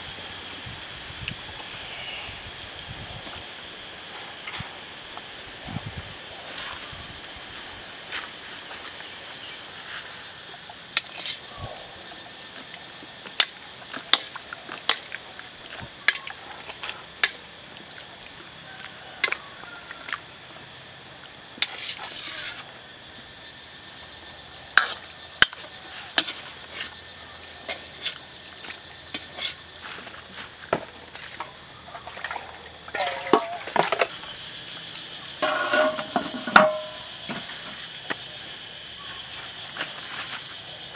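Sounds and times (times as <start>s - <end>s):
food simmering in a wok: 10.2s - 32.1s.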